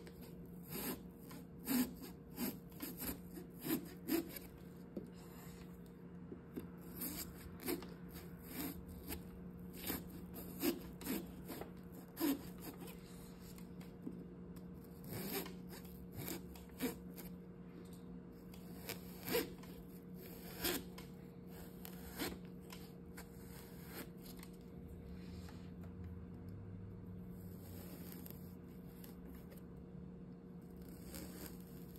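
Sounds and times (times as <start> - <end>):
knife sawing pumpkin rind: 0.0 - 4.6, 6.8 - 13.6, 14.9 - 17.3, 18.6 - 24.1.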